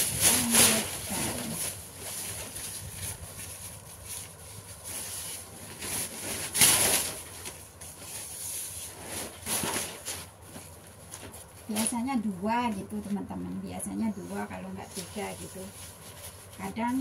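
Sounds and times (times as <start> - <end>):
paper rustling and crinkling: 0.0 - 13.2, 14.1 - 17.0.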